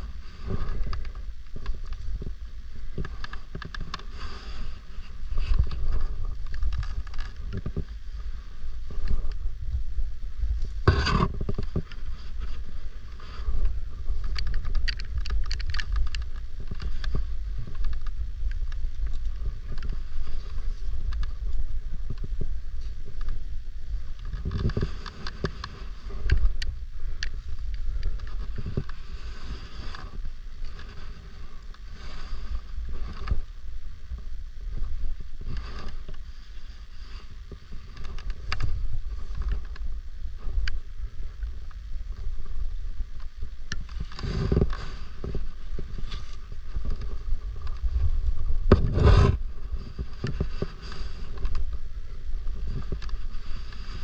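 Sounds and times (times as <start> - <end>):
wind buffeting microphone: 0.0 - 54.0
knocks and scrapes: 10.8 - 18.2, 43.9 - 51.8.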